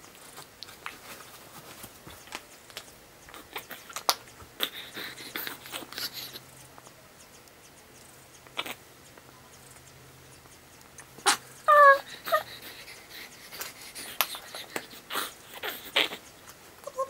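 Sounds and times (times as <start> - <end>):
baby squealing: 11.2 - 12.7.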